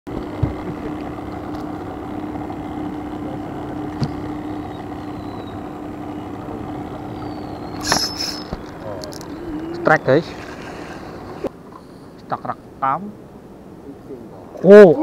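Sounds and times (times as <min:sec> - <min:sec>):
handling noise: 0:00.1 - 0:09.6
boat engine running: 0:00.1 - 0:11.9.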